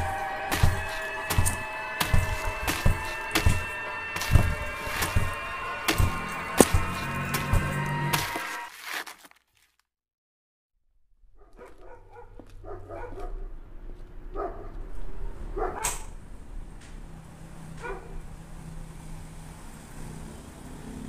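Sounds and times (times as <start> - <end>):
dog barking: 11.4 - 13.5, 14.3 - 16.2, 17.7 - 18.3.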